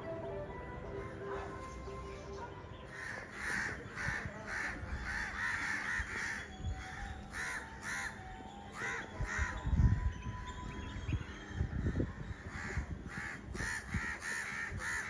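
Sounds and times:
crow cawing: 2.9s - 9.6s, 12.4s - 15.0s
wind rumble on microphone: 8.8s - 15.0s.

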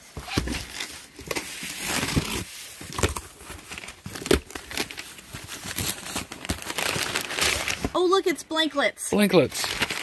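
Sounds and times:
cardboard rustling and scraping: 0.0s - 8.0s
tape tearing: 0.2s - 8.0s.

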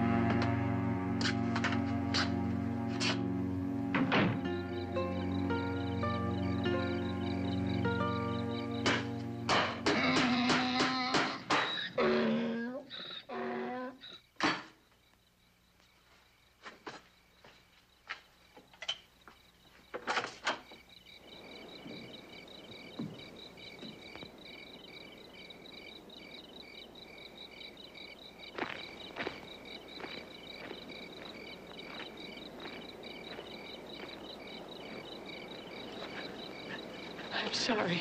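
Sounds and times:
crickets chirping: 0.0s - 38.0s
footsteps: 1.2s - 3.3s, 15.8s - 20.8s, 28.5s - 35.2s, 35.8s - 36.8s.

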